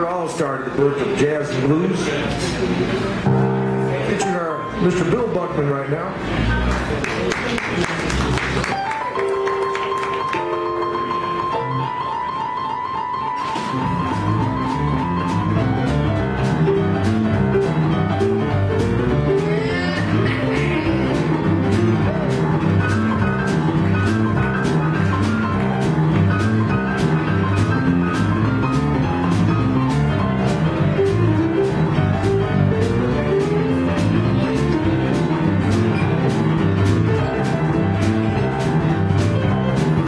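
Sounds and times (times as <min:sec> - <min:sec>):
live blues band playing: 0:00.0 - 0:40.0
piano: 0:00.0 - 0:40.0
drums keeping steady beat: 0:13.6 - 0:40.0.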